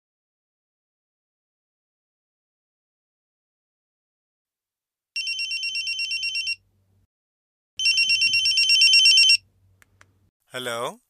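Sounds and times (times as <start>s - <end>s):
electronic telephone ringing: 5.2s - 6.6s, 7.8s - 9.4s.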